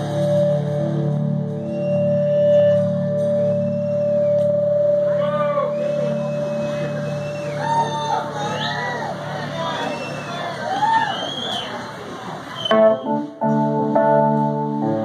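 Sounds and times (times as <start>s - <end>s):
person whooping: 5.0s - 9.2s.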